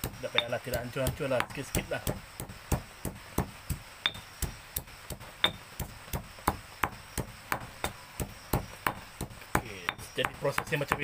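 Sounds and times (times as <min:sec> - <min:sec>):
stone pestle pounding in mortar: 0:00.0 - 0:11.0
stone clinking on stone: 0:00.3 - 0:01.9, 0:04.0 - 0:04.4, 0:05.4 - 0:05.7, 0:09.8 - 0:11.0.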